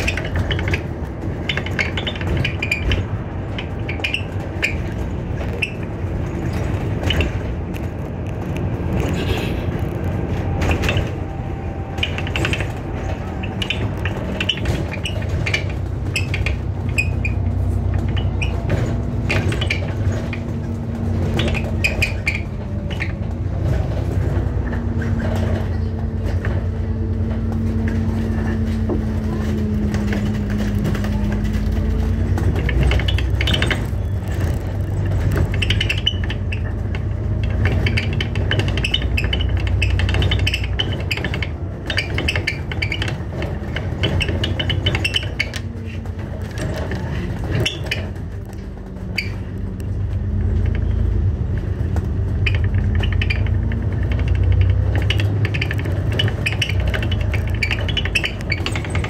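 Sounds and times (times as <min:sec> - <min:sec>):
bus engine and road rumble: 0:00.0 - 0:59.0
interior fittings rattling: 0:09.8 - 0:59.0.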